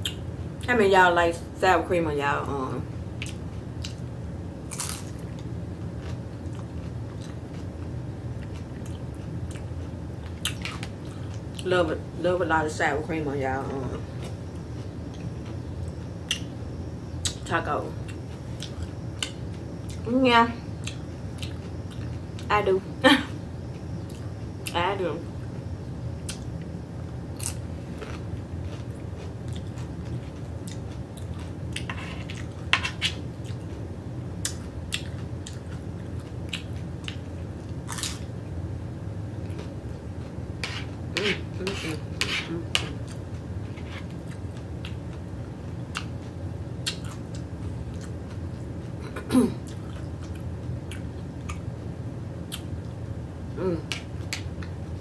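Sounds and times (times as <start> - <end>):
steady low hum: 0.0 - 55.0
person chewing food: 4.7 - 11.6, 20.8 - 22.2, 27.4 - 38.2, 42.7 - 45.3, 45.9 - 51.6.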